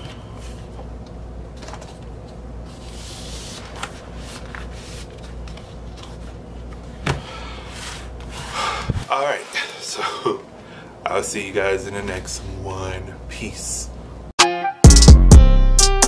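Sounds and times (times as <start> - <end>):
cardboard and paper rustling: 1.5 - 6.8.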